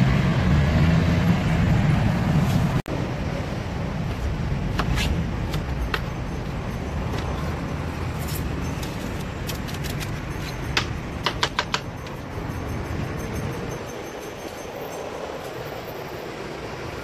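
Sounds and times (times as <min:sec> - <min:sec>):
street traffic rumble: 0:00.0 - 0:17.0.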